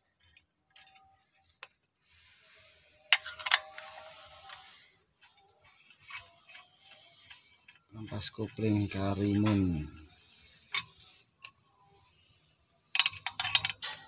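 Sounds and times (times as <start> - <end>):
metal tool clicks: 12.9 - 14.0.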